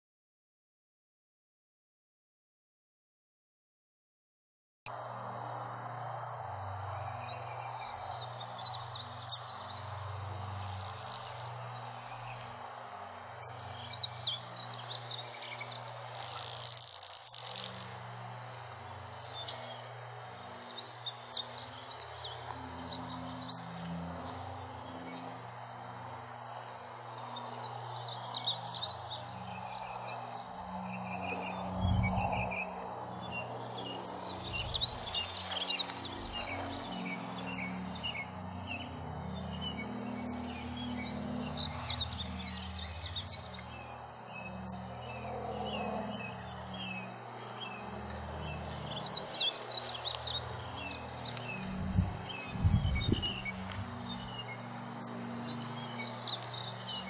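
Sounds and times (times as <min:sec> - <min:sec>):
insects trilling: 0:04.9 - 0:57.0
bird chirping: 0:06.9 - 0:20.0.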